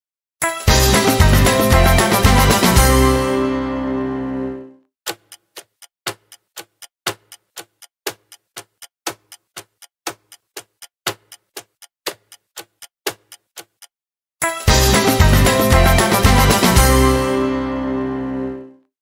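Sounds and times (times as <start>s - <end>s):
music: 0.4s - 4.9s, 14.4s - 18.9s
clock ticking: 5.1s - 16.6s.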